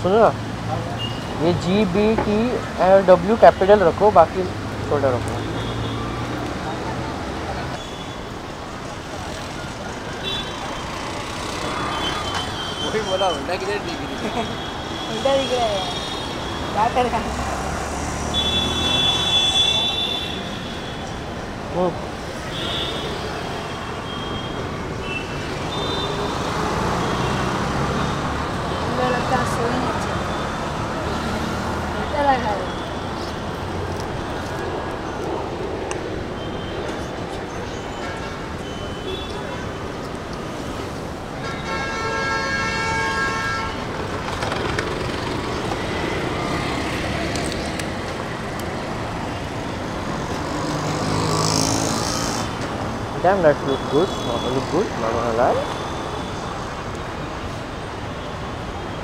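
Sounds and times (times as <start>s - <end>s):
street traffic passing: 0.0s - 59.0s
vehicle horn: 18.4s - 21.0s, 41.4s - 43.8s.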